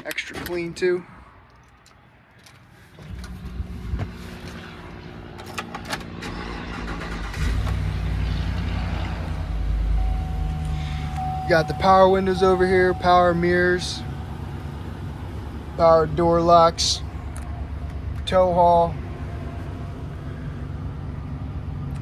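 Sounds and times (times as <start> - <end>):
clicks and handling noises: 1.4 - 3.4
van engine starting and idling: 2.8 - 22.0.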